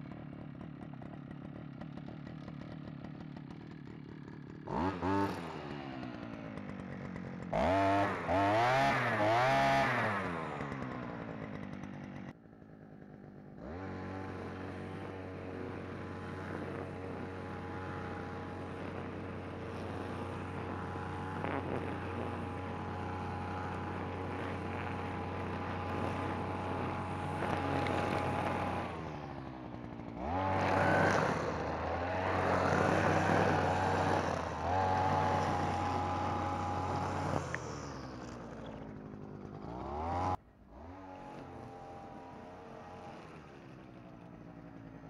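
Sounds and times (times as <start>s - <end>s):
brush cutter engine revving: 0.0s - 45.0s
line head cutting grass: 13.7s - 45.0s.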